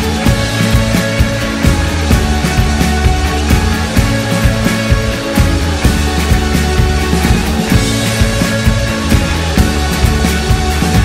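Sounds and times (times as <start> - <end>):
heavy bass line: 0.0 - 11.0
music with steady drum beat: 0.0 - 11.0.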